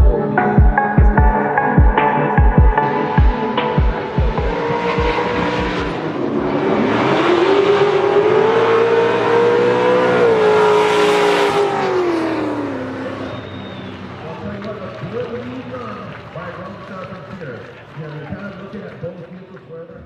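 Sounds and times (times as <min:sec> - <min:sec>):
car engines at high revs: 0:03.0 - 0:16.4.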